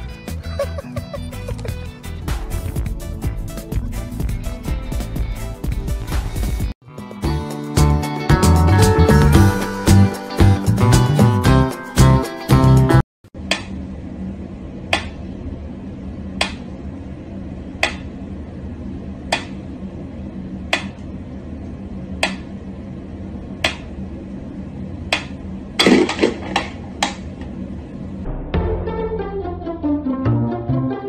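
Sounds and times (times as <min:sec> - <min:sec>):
low room hum: 0:13.3 - 0:28.3.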